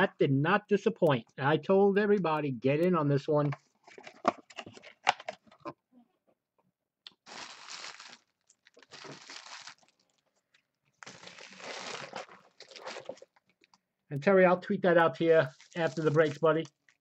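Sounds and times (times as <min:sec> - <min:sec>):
packaging crinkling: 0:07.2 - 0:13.7, 0:15.4 - 0:17.0.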